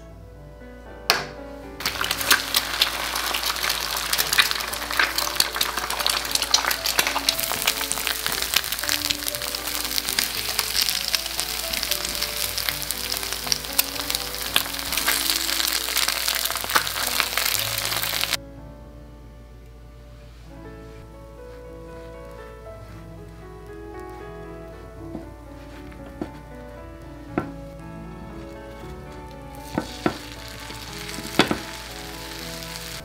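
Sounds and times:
eggs sizzling in oil: 1.8 - 18.4, 28.4 - 33.0.

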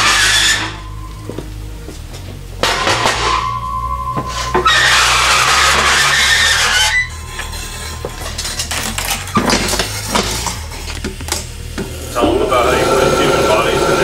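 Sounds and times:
low hum of shop machinery: 0.0 - 14.0
metal parts and tools clinking: 5.6 - 11.6.

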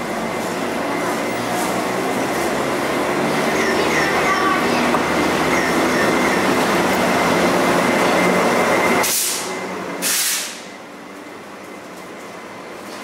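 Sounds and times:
train passing rumble: 0.0 - 13.0
short high hisses: 9.0 - 10.6.

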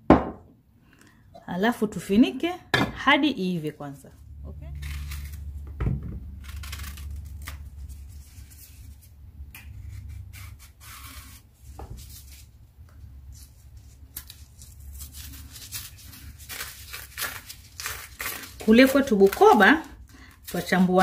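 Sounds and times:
peel tearing and snapping: 4.7 - 5.6, 6.3 - 8.1, 14.1 - 18.7
knife scraping plantain peel: 4.7 - 5.7, 6.4 - 12.5, 13.3 - 21.0.

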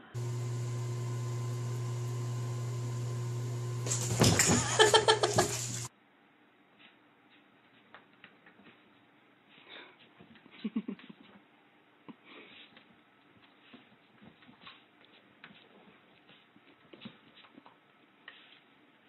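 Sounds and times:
low hum: 0.0 - 5.9
cat splashing in bathwater: 1.2 - 5.9.

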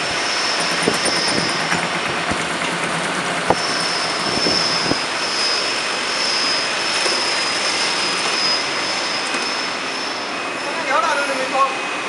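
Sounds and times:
thin high whine: 3.5 - 12.0.

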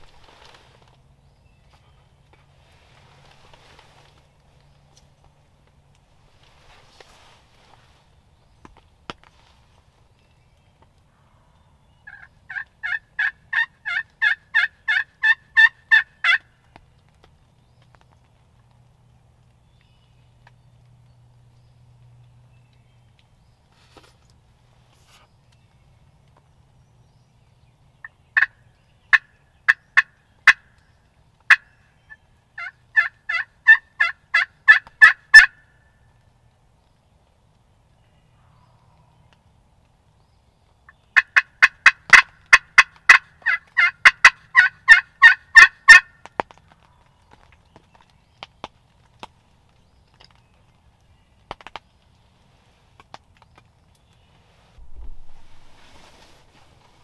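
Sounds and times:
turkey calling clucks and yelps: 12.0 - 16.5, 28.4 - 30.6, 31.5 - 35.7, 40.9 - 46.5.

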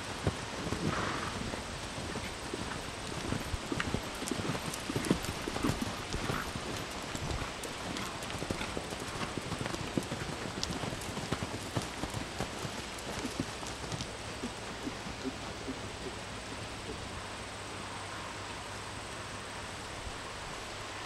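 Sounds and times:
horse hoofbeats on sand: 0.0 - 16.6.

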